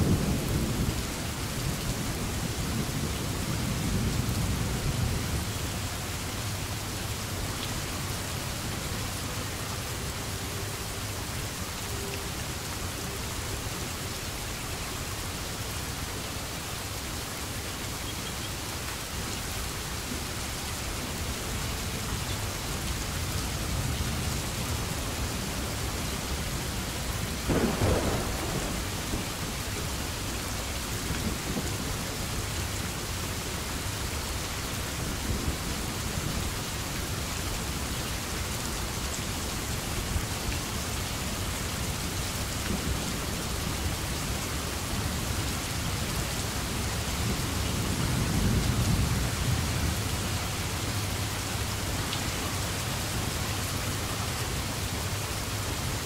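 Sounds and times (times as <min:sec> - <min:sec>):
steady rain: 0:00.0 - 0:56.0
low thunder rumble: 0:27.3 - 0:30.2
thunderclap: 0:27.5 - 0:29.4.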